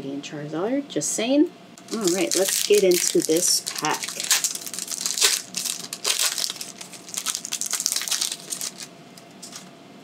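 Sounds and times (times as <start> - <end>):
foil wrapper crinkling and tearing: 1.8 - 9.7.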